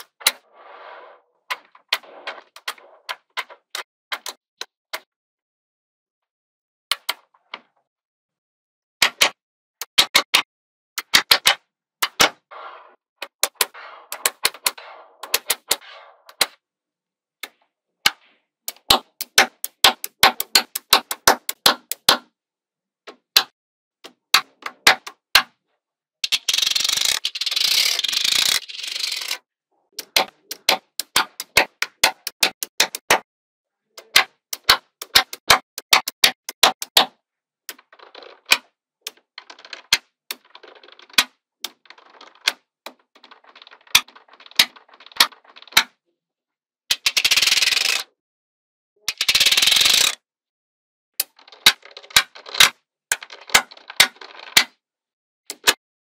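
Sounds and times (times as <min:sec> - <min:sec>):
magnetic balls clicking: 0:17.4 - 0:22.1, 0:26.2 - 0:29.4, 0:30.0 - 0:33.2, 0:34.0 - 0:37.1.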